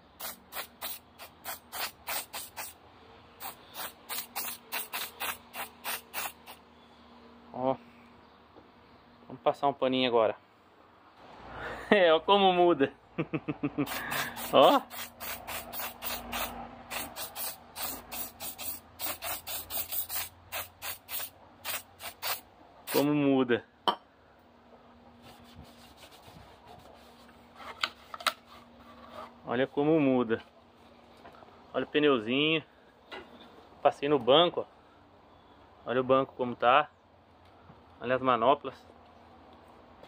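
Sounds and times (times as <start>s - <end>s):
spray bottle spritzes: 0.2s - 2.8s, 3.4s - 6.6s, 13.9s - 23.0s
cloth wiping plastic: 25.2s - 27.8s.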